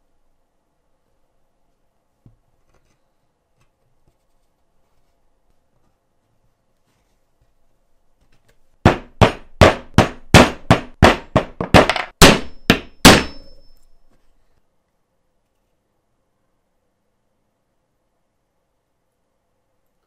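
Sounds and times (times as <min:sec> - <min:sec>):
mallet knocking magnets: 0:08.8 - 0:13.7.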